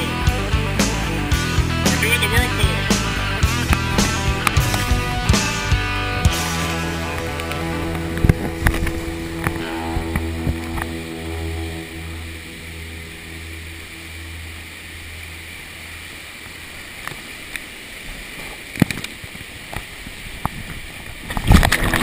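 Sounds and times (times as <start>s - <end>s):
water rushing and splashing: 0.0s - 22.0s
low rumble: 2.6s - 16.9s.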